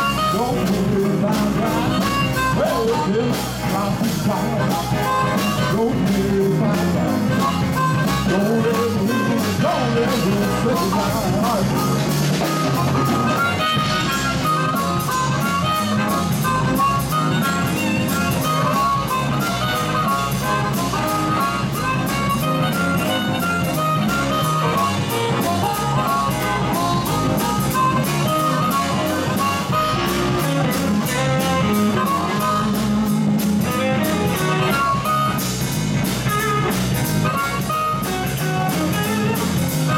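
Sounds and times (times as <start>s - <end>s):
amplified harmonica: 0.0s - 39.9s
electric blues band playing: 0.0s - 39.9s.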